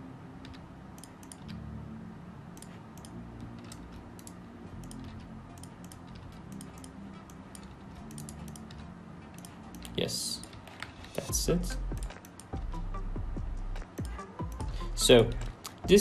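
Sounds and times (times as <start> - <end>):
low steady hum: 0.0 - 16.0
computer keyboard and mouse clicks: 0.4 - 1.6, 2.6 - 11.2, 11.9 - 12.6, 13.8 - 14.7.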